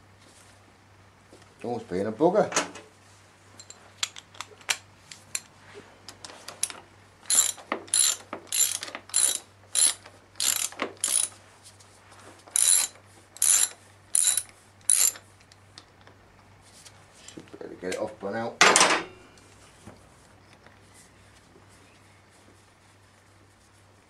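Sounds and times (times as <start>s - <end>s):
socket ratchet clicking: 6.6s - 11.3s, 12.5s - 15.2s.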